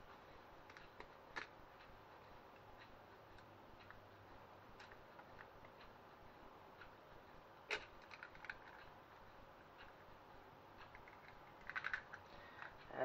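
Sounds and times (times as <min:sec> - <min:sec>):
egg shell clicks and taps: 0:07.7 - 0:08.8, 0:10.8 - 0:12.8.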